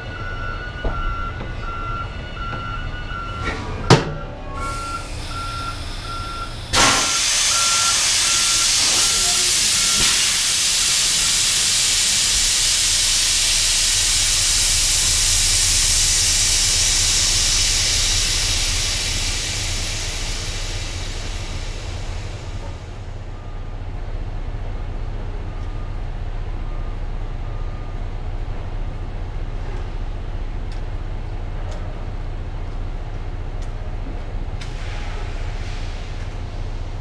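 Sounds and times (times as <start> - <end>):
reversing alarm beeping: 0.0 - 11.5
air brake hissing: 4.6 - 23.1, 34.6 - 36.8.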